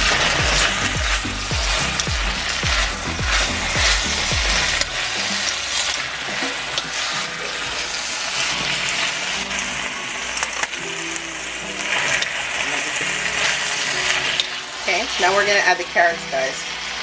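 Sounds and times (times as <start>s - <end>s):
background music with a beat: 0.0s - 14.8s
food sizzling in a wok: 0.0s - 17.0s.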